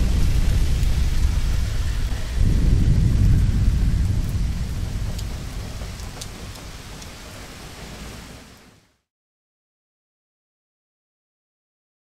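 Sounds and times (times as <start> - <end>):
faint crackles: 0.0 - 8.6
deep rumble with hiss: 0.0 - 8.9.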